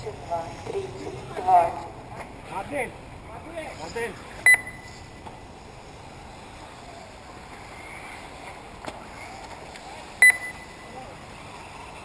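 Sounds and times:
low background noise: 0.0 - 12.0
electric toy cars whining: 3.4 - 12.0
high electronic beep: 4.4 - 5.0, 10.2 - 10.8.

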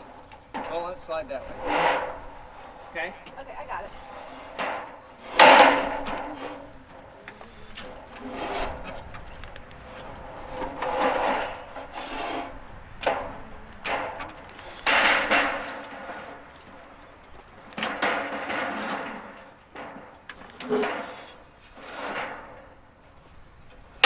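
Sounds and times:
aluminum ladder scraping on wood: 0.0 - 24.0
ladder knocking: 3.1 - 7.0.

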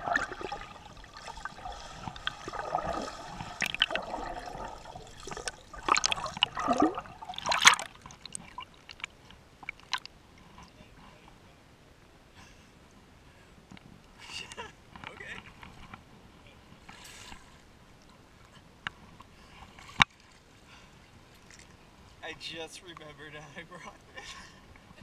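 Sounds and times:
pool water splashing: 0.0 - 10.2
water lapping and dripping: 0.0 - 10.8.

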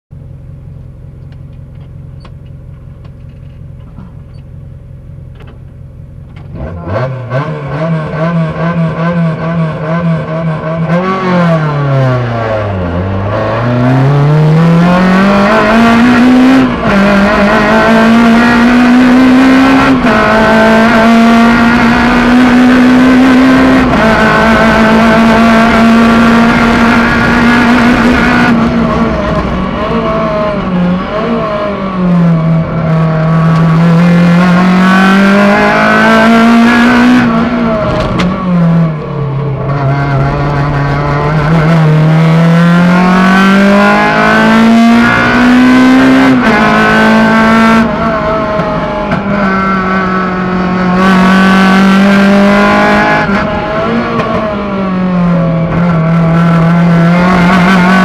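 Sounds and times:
car engine revving through gears: 6.2 - 58.0.

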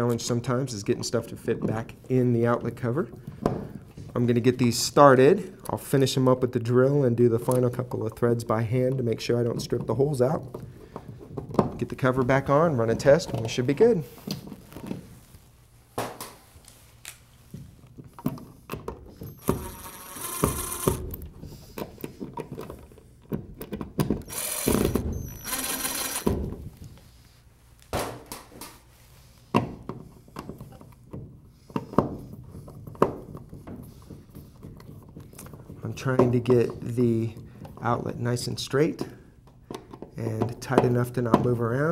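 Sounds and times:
cordless drill driving screws: 19.2 - 21.2, 24.2 - 26.4.

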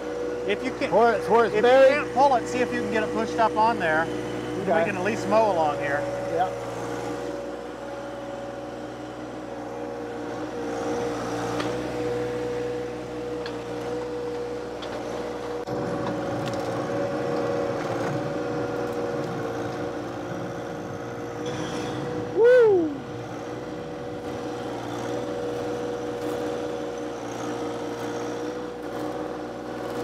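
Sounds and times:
tractor diesel engine running: 0.0 - 21.4.

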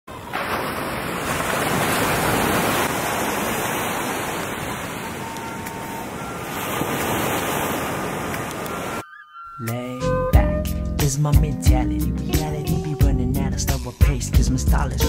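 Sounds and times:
ocean surf rushing: 0.1 - 9.0.

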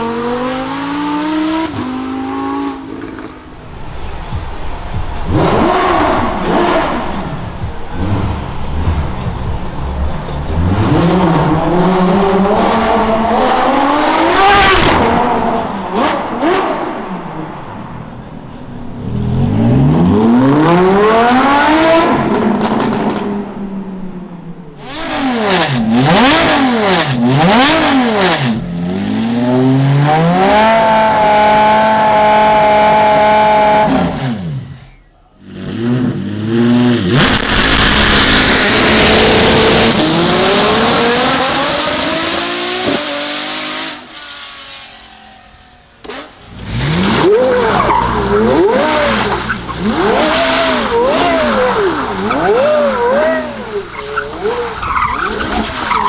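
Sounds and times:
car engines revving: 0.0 - 56.0.

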